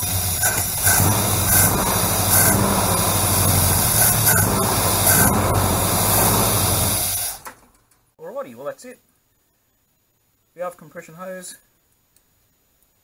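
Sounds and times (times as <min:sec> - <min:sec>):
car engine idling: 0:00.0 - 0:07.4
loud hiss: 0:00.0 - 0:07.6.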